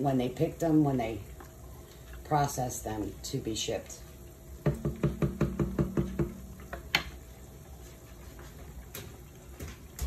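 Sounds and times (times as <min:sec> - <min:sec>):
wooden spoon knocking against pot: 0:04.6 - 0:07.1.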